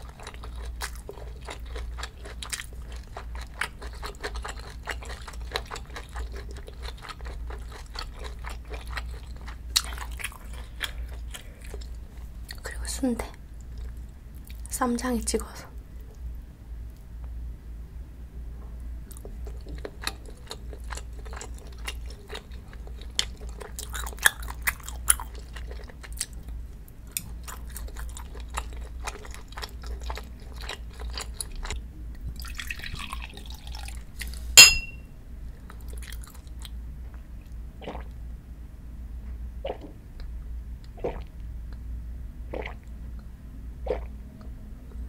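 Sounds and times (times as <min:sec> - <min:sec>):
close chewing with wet mouth clicks: 0:00.0 - 0:12.6, 0:19.1 - 0:31.8, 0:35.7 - 0:36.7, 0:40.8 - 0:41.3, 0:42.5 - 0:42.8
sharp ringing clink: 0:34.6 - 0:35.0.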